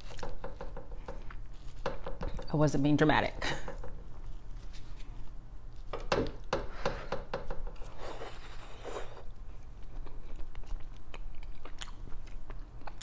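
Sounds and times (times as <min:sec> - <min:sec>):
chewing: 0:08.2 - 0:13.0.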